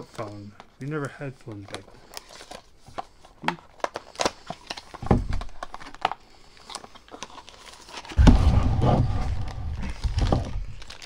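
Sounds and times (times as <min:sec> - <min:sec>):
plastic bag crinkling: 0:00.1 - 0:11.0
cardboard box being opened: 0:07.4 - 0:11.0
low thump and rumble: 0:08.2 - 0:10.8.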